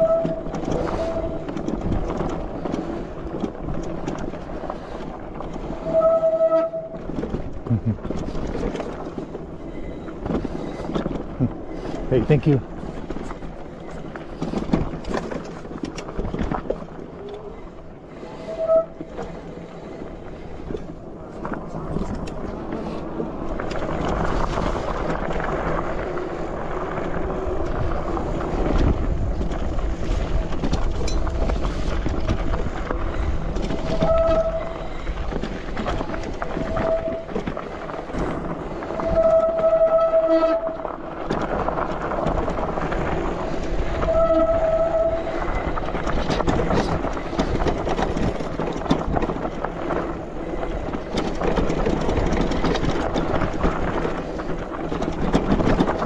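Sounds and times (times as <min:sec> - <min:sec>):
tyres rumbling on rocky trail: 0:00.0 - 0:56.0
bike brakes squealing: 0:05.8 - 0:07.0, 0:33.9 - 0:34.9, 0:39.0 - 0:40.8.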